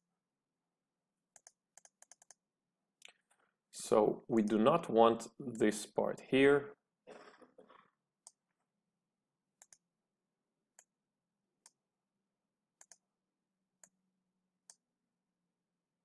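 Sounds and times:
computer mouse clicking: 1.3 - 2.4, 9.6 - 9.8, 12.8 - 13.0.

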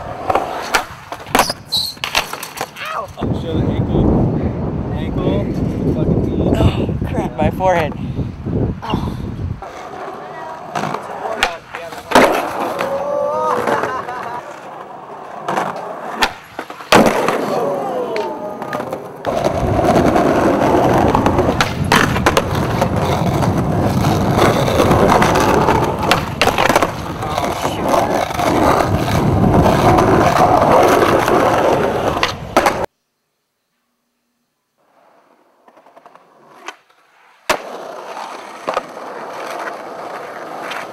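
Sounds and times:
skateboard popping and landing: 0.0 - 3.0, 9.6 - 32.9, 34.9 - 40.9
skateboard wheels rolling on concrete: 0.0 - 32.9, 34.8 - 40.9.

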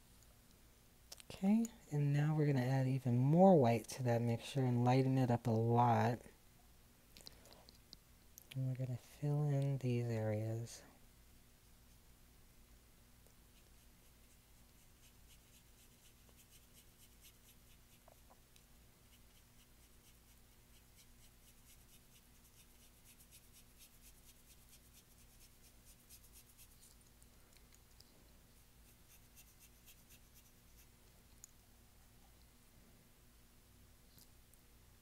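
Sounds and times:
faint low hum: 0.0 - 35.0
paintbrush brushing on canvas: 13.5 - 18.3, 19.0 - 27.0, 28.6 - 30.9.

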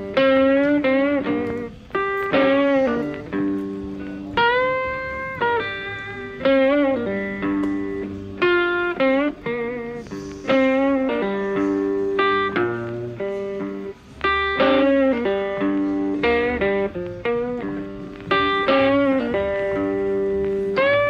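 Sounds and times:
guitar plucking bent notes: 0.0 - 21.0.

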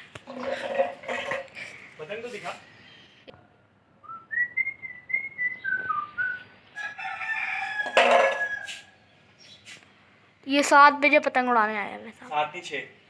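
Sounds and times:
whistled notes: 4.0 - 6.5
rooster crowing: 6.7 - 9.0.

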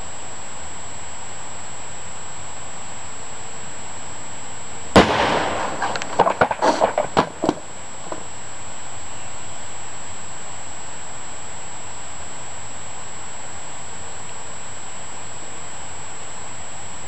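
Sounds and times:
airbag bang: 5.0 - 8.2
wooden boards thudding and clattering: 5.0 - 8.2.

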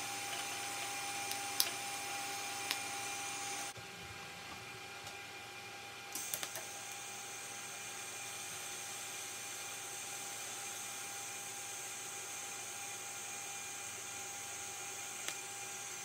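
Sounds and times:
welding arc crackles: 0.0 - 3.7, 6.1 - 10.6
welding arc hissing: 0.0 - 3.8, 6.1 - 16.0.

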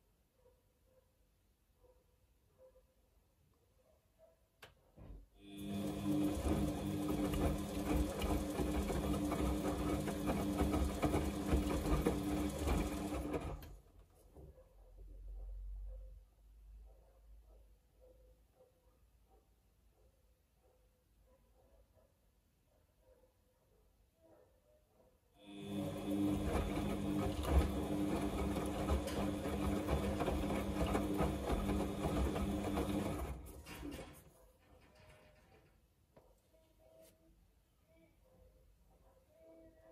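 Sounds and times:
washing machine motor hum: 5.4 - 13.9, 25.4 - 33.6.

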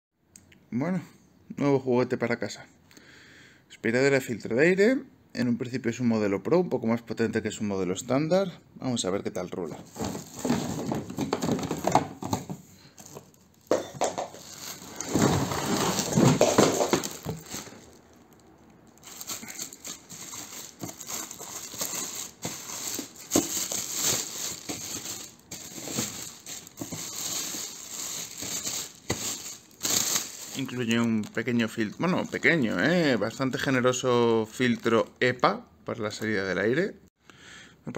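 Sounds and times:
plastic wrapping crinkling: 9.8 - 33.2
knocks and scrapes: 9.9 - 17.9.

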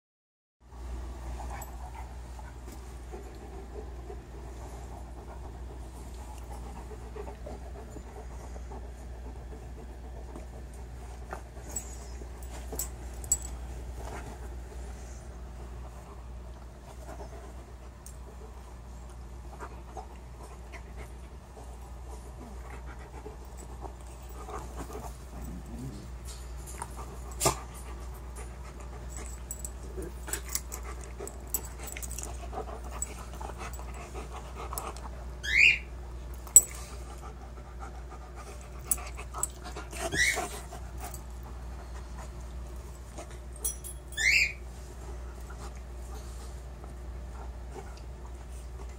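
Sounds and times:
dogs panting: 1.2 - 43.9
dog squealing: 35.4 - 35.9, 40.0 - 40.5, 44.2 - 44.6.

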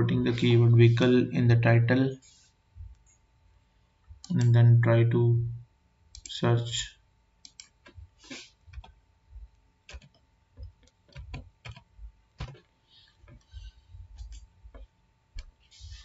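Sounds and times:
keyboard keys clicking: 7.4 - 8.0, 8.7 - 9.0, 9.9 - 13.6, 14.2 - 16.0.

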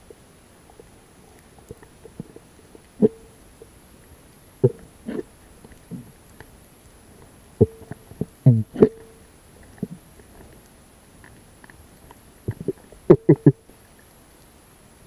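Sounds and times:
underwater knocks and gurgles: 0.0 - 3.8, 4.6 - 6.6, 7.2 - 13.6.

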